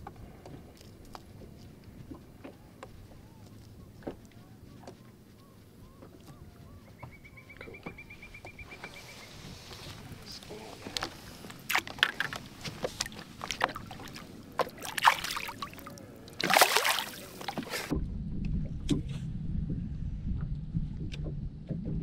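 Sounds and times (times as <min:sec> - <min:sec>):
low hum with light ticks: 0:00.0 - 0:09.0, 0:17.9 - 0:22.0
water splashing and dripping: 0:11.0 - 0:17.9.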